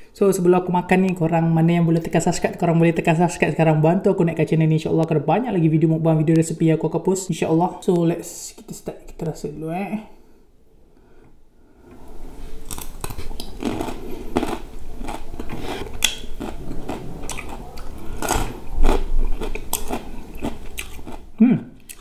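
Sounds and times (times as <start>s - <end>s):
close chewing and biting: 12.6s - 22.0s
mouth clicks and smacks: 12.8s - 22.0s.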